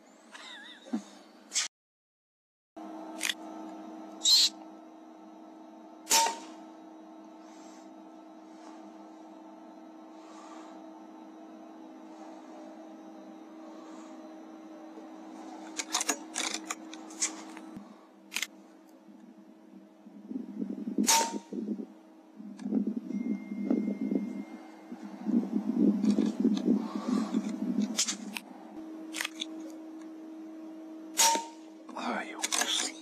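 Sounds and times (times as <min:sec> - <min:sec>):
faint steady hum: 0:02.8 - 0:33.0
air rifle shot: 0:06.1 - 0:06.5, 0:21.0 - 0:21.5, 0:31.2 - 0:31.6.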